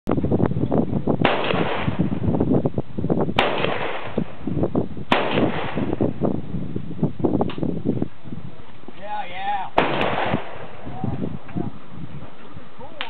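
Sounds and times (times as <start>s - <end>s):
gunshots with echo: 1.2s - 2.0s, 3.4s - 4.2s, 5.1s - 6.0s, 9.8s - 10.9s.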